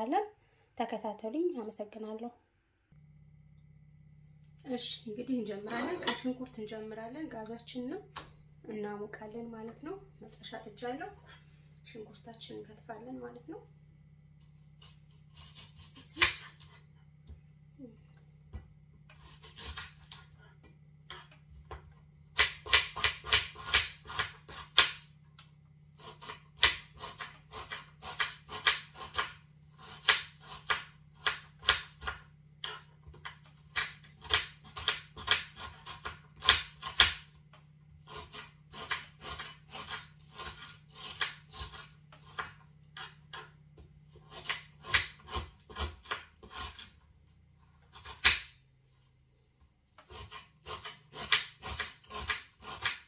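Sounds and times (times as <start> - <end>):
knife chopping on cutting board: 18.5 - 20.3, 21.1 - 25.1, 26.0 - 37.3, 38.0 - 47.0, 47.9 - 48.6, 50.0 - 53.0.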